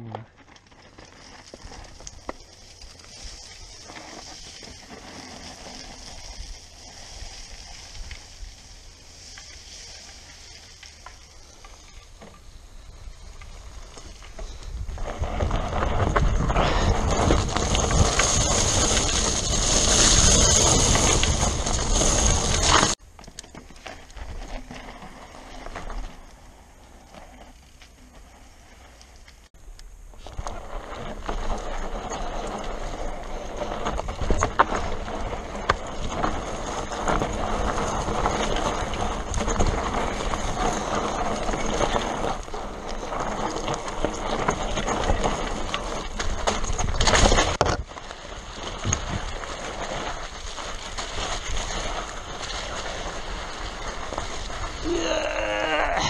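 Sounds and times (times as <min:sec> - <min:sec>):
bike tyres crunching over stones: 0:00.0 - 0:56.0
bike knocking on rocks: 0:31.2 - 0:54.8.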